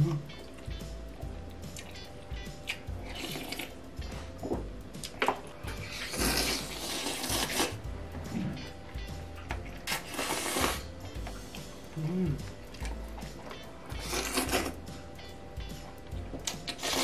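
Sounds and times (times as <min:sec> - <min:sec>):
faint background music: 0:00.0 - 0:17.0
slurping food off a spoon: 0:09.9 - 0:10.9.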